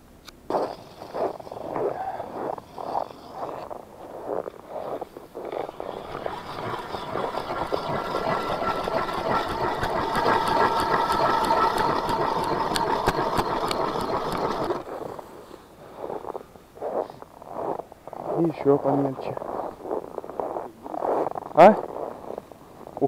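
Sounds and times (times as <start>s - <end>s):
motor running with whine: 5.4s - 15.2s
quick regular clicks: 5.6s - 14.9s.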